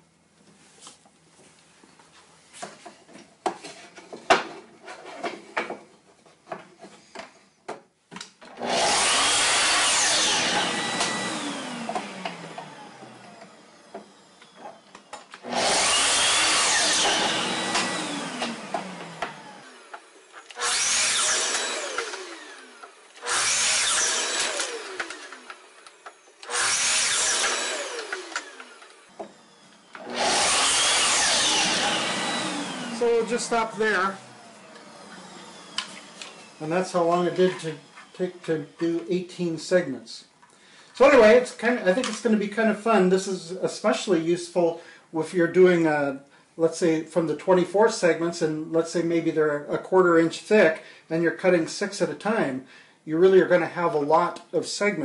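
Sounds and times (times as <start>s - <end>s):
miter saw cutting wood: 8.6s - 39.4s, 41.0s - 42.4s.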